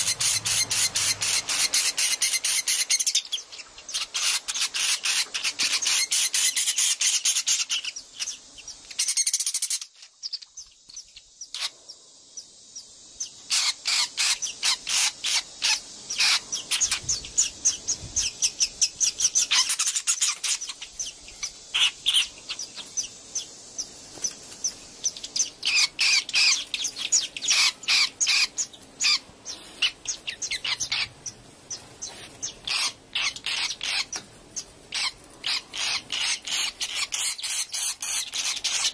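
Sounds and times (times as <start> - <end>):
swiftlets twittering chirps: 0.0 - 11.7.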